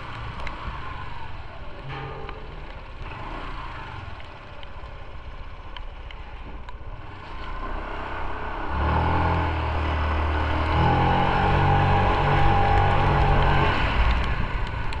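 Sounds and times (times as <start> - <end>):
motorcycle engine pulling uphill: 0.0 - 15.0.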